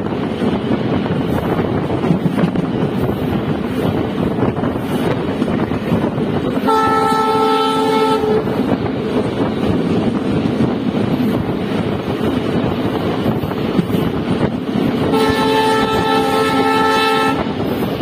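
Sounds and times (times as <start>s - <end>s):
train wheels on rails: 0.0s - 18.0s
train horn blast: 6.6s - 8.7s, 15.0s - 17.6s.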